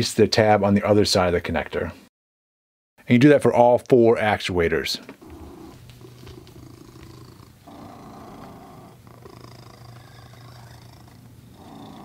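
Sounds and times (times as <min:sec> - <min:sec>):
cat purring: 0:05.2 - 0:12.0.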